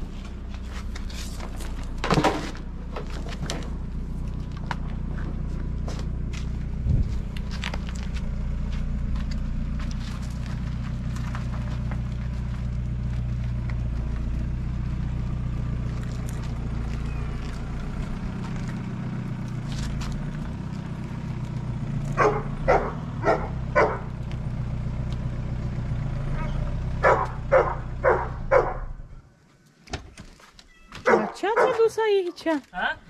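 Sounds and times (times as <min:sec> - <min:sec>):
vehicle engine humming: 0:00.0 - 0:33.0
dog barking: 0:22.2 - 0:24.1, 0:26.4 - 0:28.9, 0:31.0 - 0:31.9.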